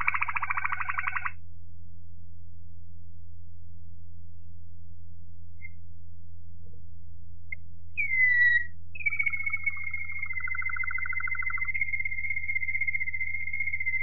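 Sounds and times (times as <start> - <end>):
canary whistling song: 0.0 - 1.3, 8.0 - 14.0
fast bird trill: 0.0 - 1.4, 8.0 - 14.0.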